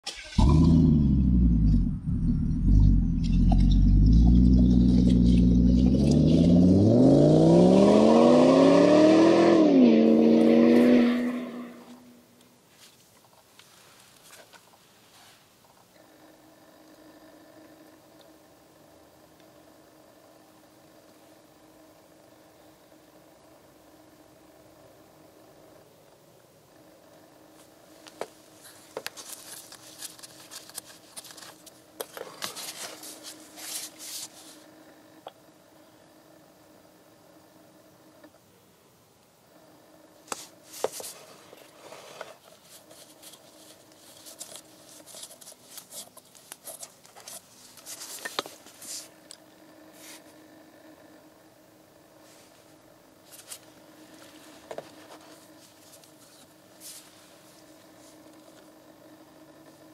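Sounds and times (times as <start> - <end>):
low steady hum: 0.1 - 8.8
faint steady hum: 11.2 - 59.9
soft rustles: 12.7 - 15.8, 27.6 - 34.8, 40.2 - 49.2, 49.9 - 50.4, 52.2 - 58.7.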